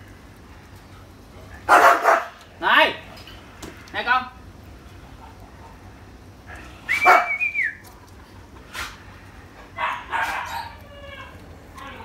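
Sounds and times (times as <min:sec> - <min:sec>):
puppy crying: 0:06.9 - 0:07.4, 0:09.8 - 0:12.0.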